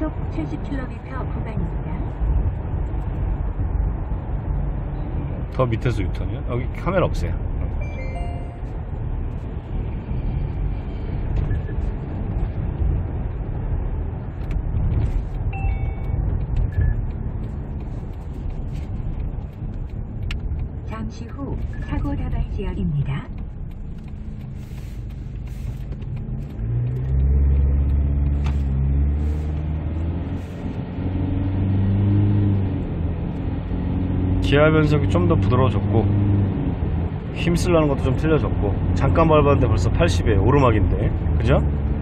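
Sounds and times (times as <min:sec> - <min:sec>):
car cabin road and engine rumble: 0:00.0 - 0:42.0
car engine accelerating hard: 0:23.2 - 0:42.0.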